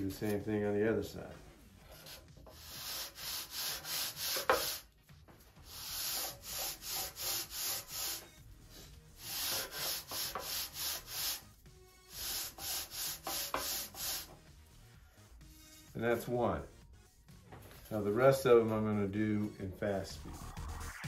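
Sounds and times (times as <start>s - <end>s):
sanding bar rasping on wood: 2.0s - 4.8s, 5.6s - 8.3s, 9.2s - 11.4s, 12.2s - 14.3s.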